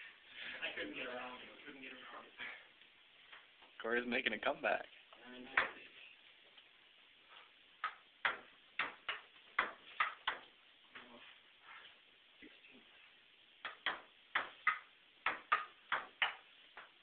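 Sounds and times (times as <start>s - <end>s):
ball knocked by stools: 7.8s - 10.6s, 13.6s - 17.0s
ping-pong ball clicking on table: 13.6s - 16.9s.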